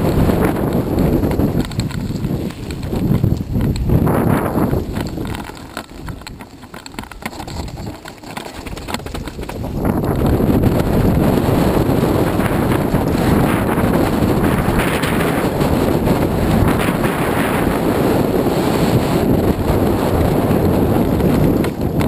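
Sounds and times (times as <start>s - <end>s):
tyres crunching over gravel: 0.0s - 15.2s
bike rattling: 0.0s - 22.0s
wind buffeting microphone: 0.0s - 22.0s.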